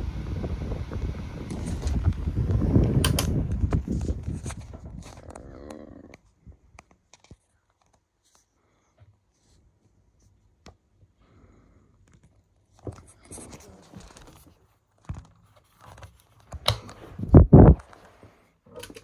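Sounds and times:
rustling and scraping: 1.5s - 2.6s, 3.4s - 10.4s, 12.2s - 19.0s
sharp clicks: 2.9s - 3.8s.

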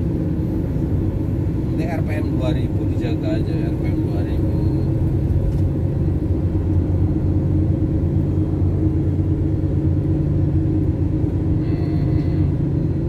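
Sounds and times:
car engine drone and road noise: 0.0s - 13.0s.

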